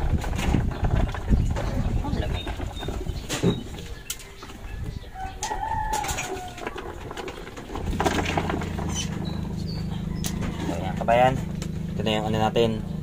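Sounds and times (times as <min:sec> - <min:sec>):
knocks and clatter: 0:00.0 - 0:04.6, 0:05.4 - 0:12.0
engine running low: 0:00.0 - 0:13.0
rooster crowing: 0:04.1 - 0:07.2, 0:09.9 - 0:10.8.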